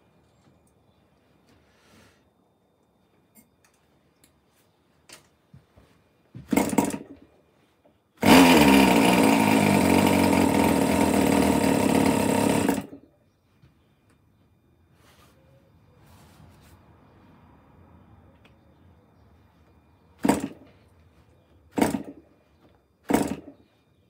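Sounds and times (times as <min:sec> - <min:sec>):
model engine high buzz: 0:08.2 - 0:13.0.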